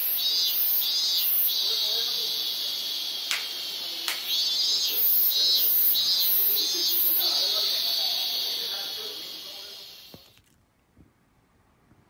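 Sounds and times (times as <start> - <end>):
pulsing high-pitched hiss: 0.0 - 10.4
sharp hand claps: 3.3 - 4.4.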